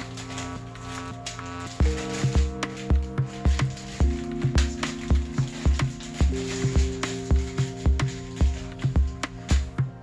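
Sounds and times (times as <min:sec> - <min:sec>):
background music with drum beat: 0:01.8 - 0:10.0.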